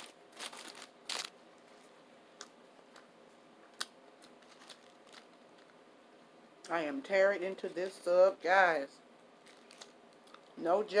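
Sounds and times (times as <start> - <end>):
wrapper crinkles and clicks: 0.0 - 1.4, 3.7 - 5.8, 9.4 - 10.6.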